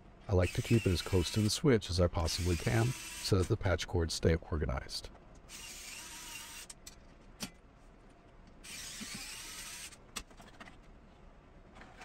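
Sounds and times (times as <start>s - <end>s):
cordless screwdriver running: 8.7s - 9.9s.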